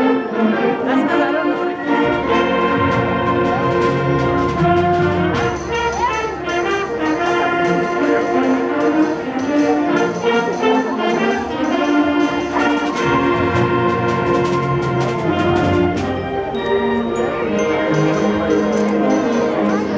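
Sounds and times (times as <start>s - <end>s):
concert band playing: 0.0s - 19.9s.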